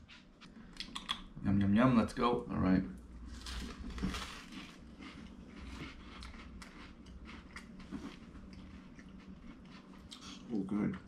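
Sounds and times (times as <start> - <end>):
people chewing crunchy crackers: 3.4 - 11.0.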